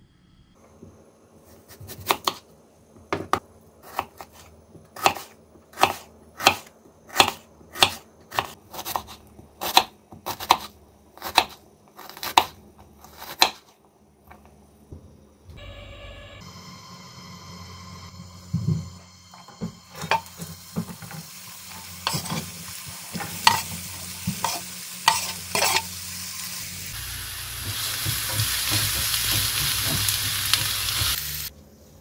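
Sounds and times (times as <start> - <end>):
knife chopping on wooden board: 1.7 - 2.4, 3.1 - 13.7, 27.6 - 31.2.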